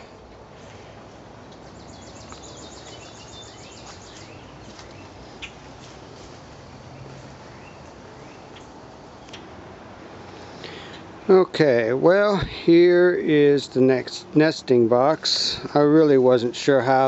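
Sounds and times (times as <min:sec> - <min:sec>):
small birds chirping: 0:01.5 - 0:09.5.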